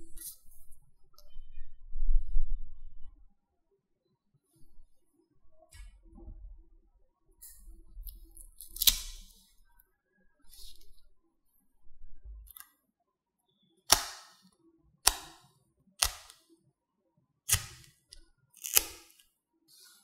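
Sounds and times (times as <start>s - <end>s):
paper tearing snaps: 8.5s - 9.4s, 17.5s - 17.9s, 18.6s - 19.2s.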